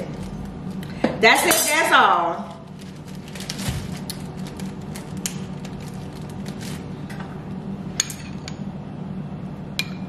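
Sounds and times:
steady low hum: 0.0 - 10.0
plastic bag rustling: 2.6 - 7.1.

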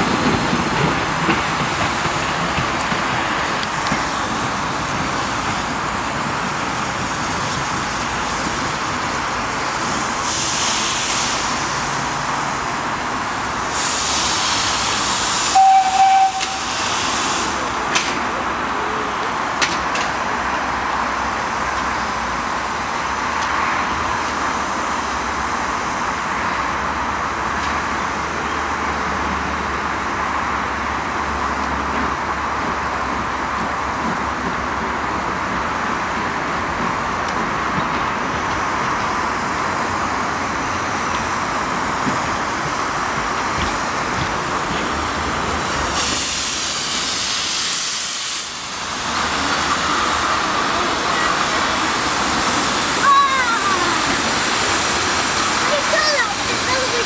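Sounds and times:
steam locomotive hissing: 0.0 - 30.4, 33.9 - 57.0
steam whistle blast: 15.4 - 16.8.

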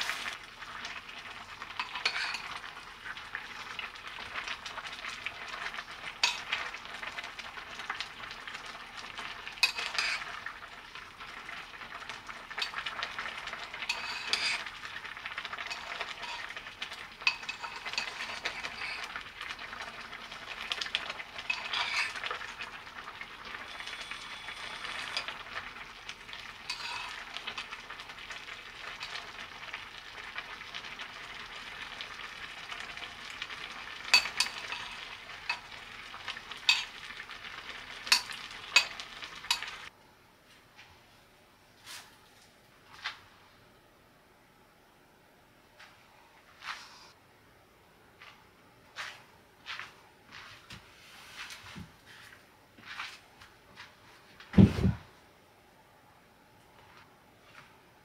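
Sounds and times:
soup simmering and bubbling: 0.0 - 40.0
metal spoon clinking on pot: 9.6 - 10.2, 13.8 - 14.6, 17.2 - 19.0, 21.4 - 22.2, 26.7 - 27.2, 34.1 - 35.7, 36.6 - 37.0, 38.1 - 39.8.

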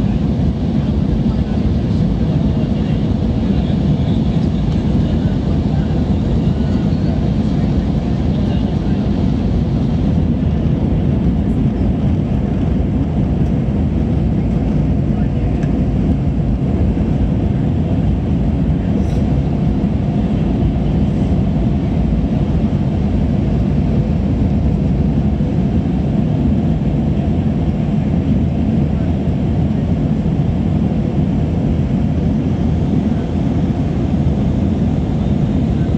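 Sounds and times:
jet engine cabin rush: 0.0 - 35.9.

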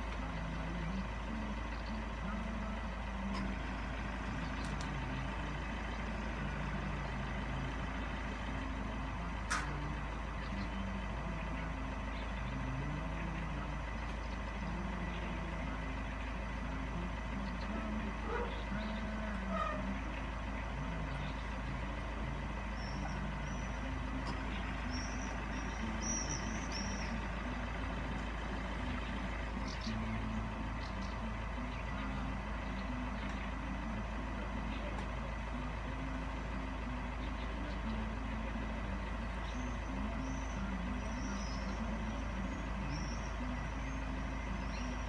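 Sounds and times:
vehicle engine idling: 0.0 - 45.0
faint bird chirps: 0.3 - 45.0
sharp click: 9.5 - 9.8.

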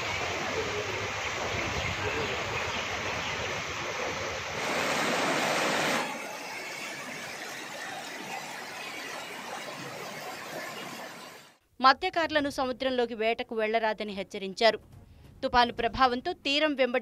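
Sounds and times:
floodwater rushing: 0.0 - 11.6.

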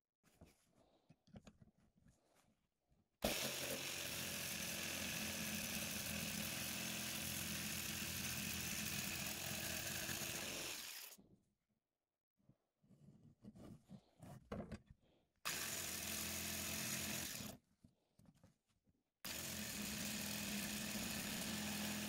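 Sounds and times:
jigsaw sawing through steel: 3.2 - 11.2, 15.5 - 17.6, 19.2 - 22.0.

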